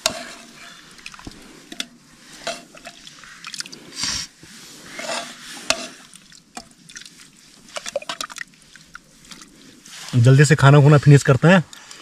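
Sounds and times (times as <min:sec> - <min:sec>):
spoon scraping a pot: 0:00.0 - 0:00.9, 0:01.7 - 0:03.1, 0:04.9 - 0:06.1.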